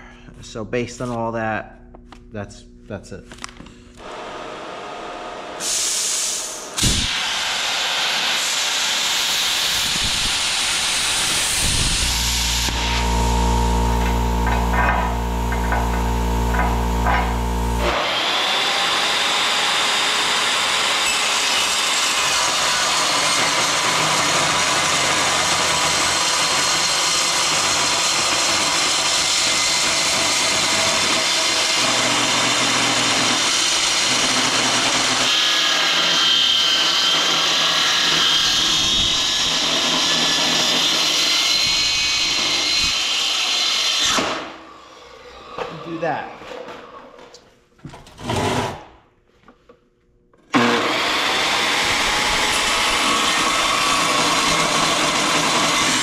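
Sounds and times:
circular saw cutting steel: 0:05.6 - 0:46.2, 0:50.6 - 0:56.0
electrical buzz: 0:09.4 - 0:19.0.

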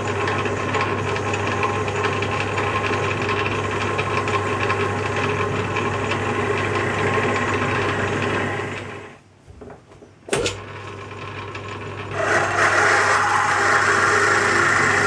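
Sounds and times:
motor hum: 0:00.0 - 0:15.0
lathe cutting metal: 0:11.0 - 0:15.0.

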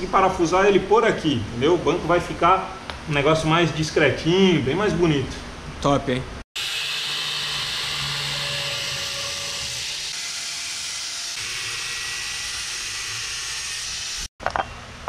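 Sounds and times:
angle grinder cutting steel: 0:06.6 - 0:14.3.

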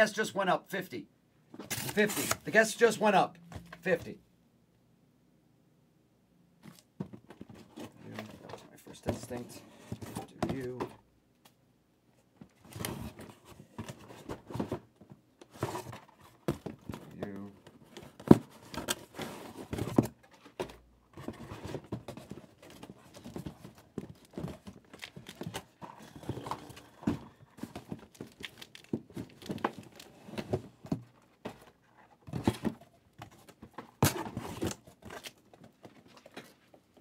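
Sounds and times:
crinkling: 0:15.4 - 0:37.0
cardboard boxes knocking on table: 0:15.6 - 0:17.2.

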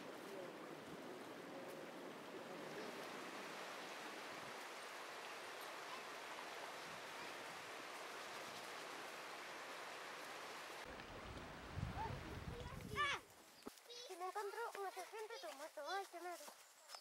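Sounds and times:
water rushing over rocks: 0:02.0 - 0:12.2.

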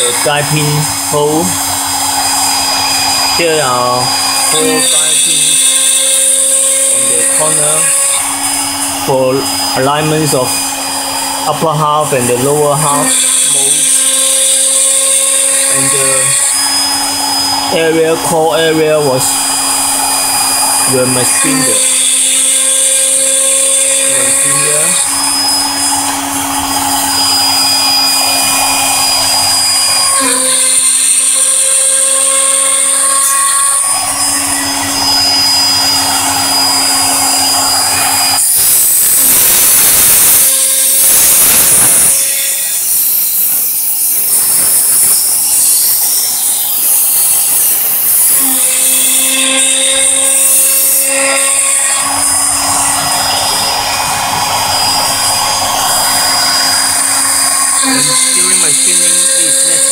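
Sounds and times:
end mill cutting metal: 0:00.0 - 0:59.9
router spindle whining: 0:00.0 - 0:59.9
loud hissing rush: 0:35.1 - 0:59.9.

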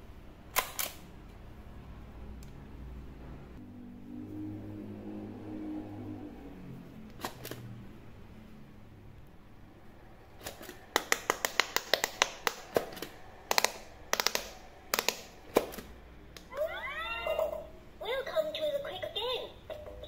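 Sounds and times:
sharp plastic clicks: 0:00.5 - 0:01.1, 0:07.1 - 0:07.7, 0:10.4 - 0:16.5.

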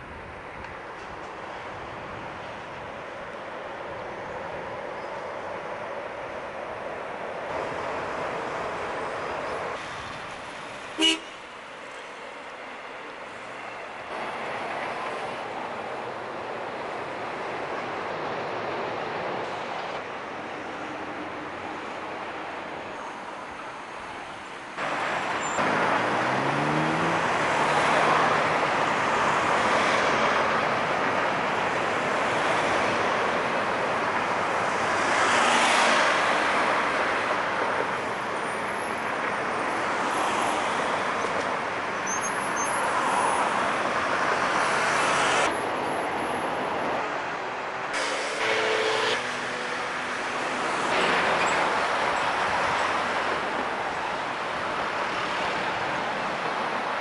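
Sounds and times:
road traffic passing: 0:00.0 - 0:57.0
vehicle accelerating: 0:25.6 - 0:28.5.

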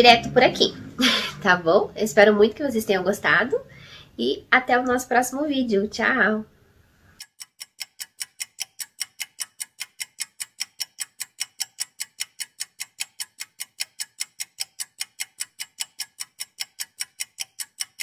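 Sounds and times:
clock ticking: 0:07.2 - 0:18.0.

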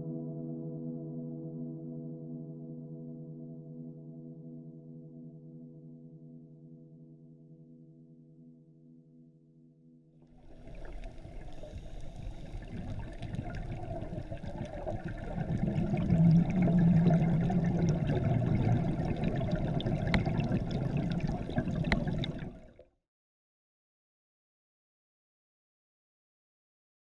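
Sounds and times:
small underwater clicks: 0:10.4 - 0:22.9
underwater bubbling and gurgling: 0:10.4 - 0:22.9.

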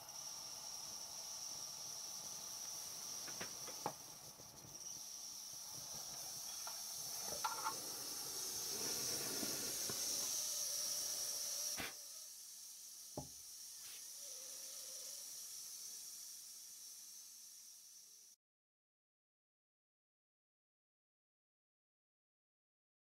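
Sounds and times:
model steam engine hissing: 0:00.0 - 0:18.4.

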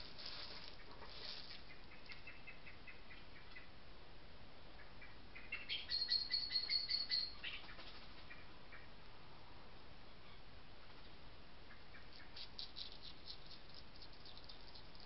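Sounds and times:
small animal chirping: 0:05.4 - 0:07.8, 0:11.7 - 0:15.0
faint ticks: 0:12.5 - 0:15.0.

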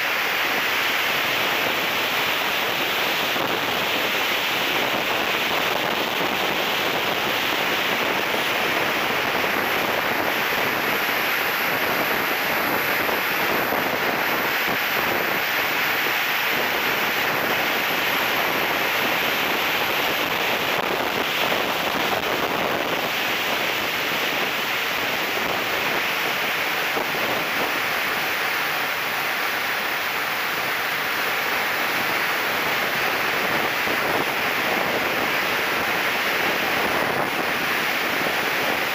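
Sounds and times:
faint high turbine whine: 0:00.0 - 0:38.9.

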